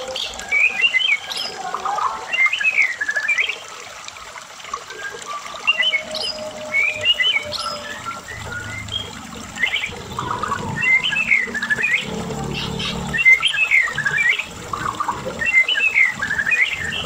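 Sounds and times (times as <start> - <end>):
bird singing warbling whistles: 4.9 - 17.0.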